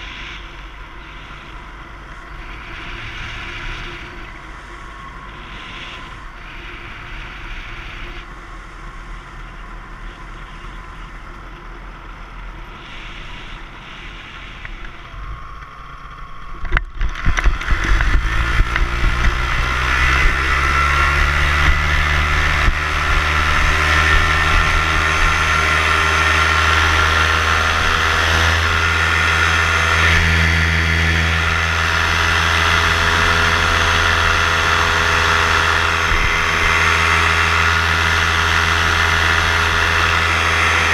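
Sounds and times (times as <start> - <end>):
paramotor engine droning: 0.0 - 40.9.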